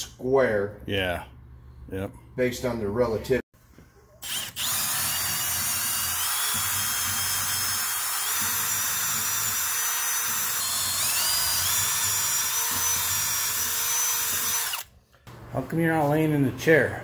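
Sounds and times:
cordless drill boring into wood: 4.2 - 14.9.

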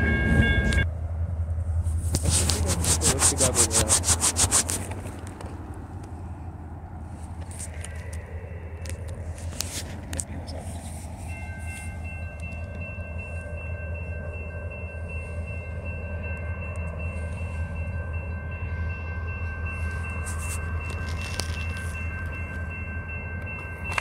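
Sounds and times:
crossing warning tones: 0.0 - 0.9, 7.8 - 24.0
locomotive engine rumble: 0.0 - 24.0.

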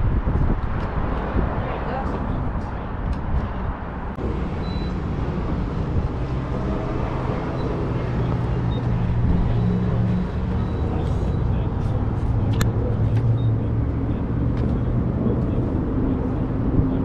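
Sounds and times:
outdoor forecourt noise: 0.0 - 17.0
vehicle engine rumbling: 0.0 - 17.0.

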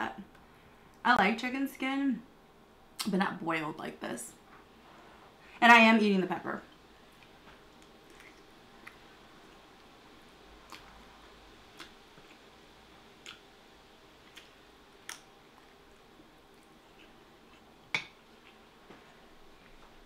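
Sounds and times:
faint chewing: 6.7 - 9.9, 10.6 - 12.5, 13.1 - 13.5, 14.2 - 20.0.

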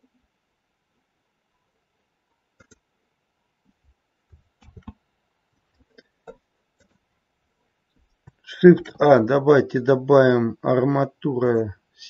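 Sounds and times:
faint computer mouse clicks: 2.6 - 2.8.

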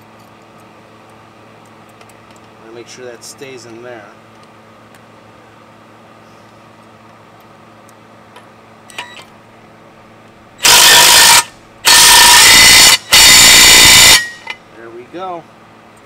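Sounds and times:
cordless driver spinning: 10.6 - 14.4.

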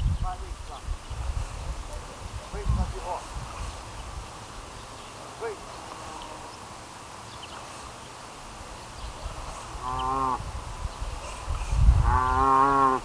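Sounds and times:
cow mooing: 9.8 - 10.4, 12.0 - 13.0.

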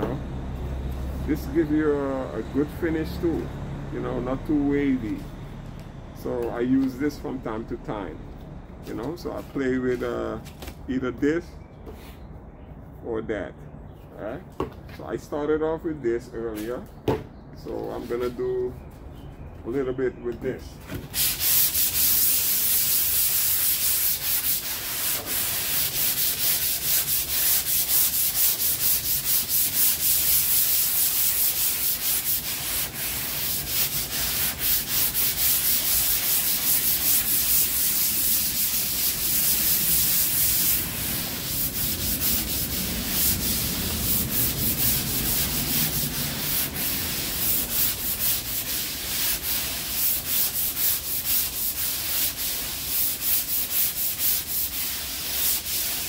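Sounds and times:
sandpaper rubbing on filler: 21.0 - 56.0.

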